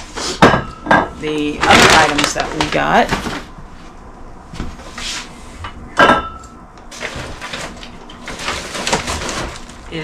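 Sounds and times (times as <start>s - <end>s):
items being handled: 0.4s - 3.6s, 6.0s - 10.0s
paper bag rustling: 1.5s - 3.6s, 6.9s - 10.0s.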